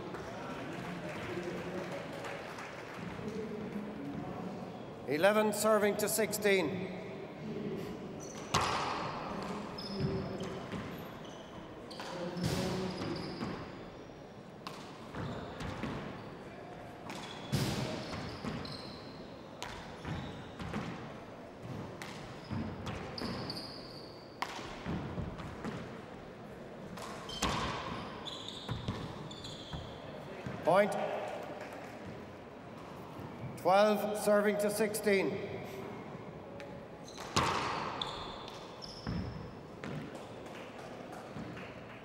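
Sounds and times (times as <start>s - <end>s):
sneaker squeaks on floor: 8.2s - 16.4s, 17.1s - 21.0s, 22.0s - 25.8s, 27.0s - 30.6s, 37.0s - 40.1s
handball smacking walls and floor: 37.2s - 40.3s.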